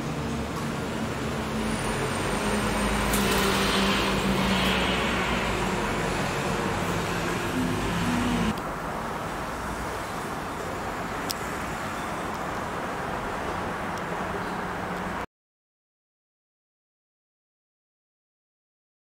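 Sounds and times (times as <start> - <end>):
motor vehicle engine running: 1.1 - 8.6.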